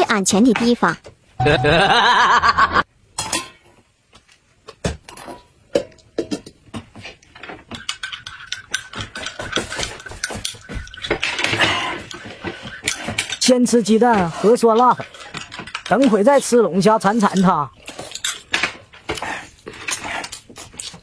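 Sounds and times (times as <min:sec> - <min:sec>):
loud warbling tone: 0:01.4 - 0:02.0.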